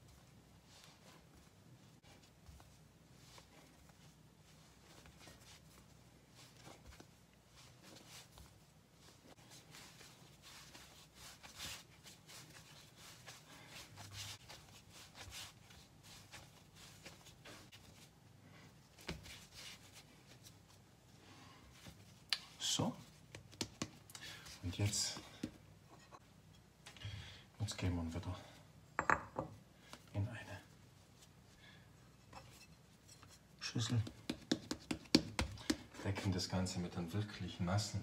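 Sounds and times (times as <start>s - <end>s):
hands kneading dough on stone: 0.1s - 18.1s, 21.7s - 26.2s, 32.9s - 36.2s.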